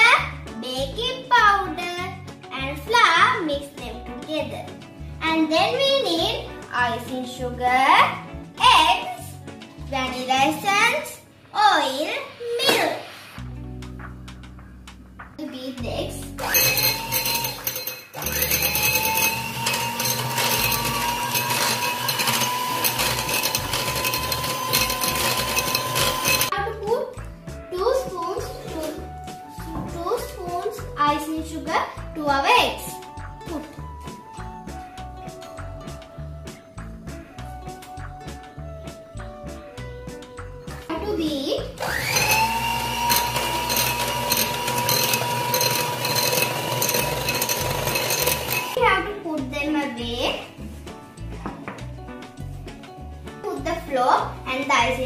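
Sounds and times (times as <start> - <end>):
beaters whisking in glass bowl: 16.4 - 26.5, 41.8 - 48.8
electric hand mixer whining: 16.4 - 26.5, 41.8 - 48.8.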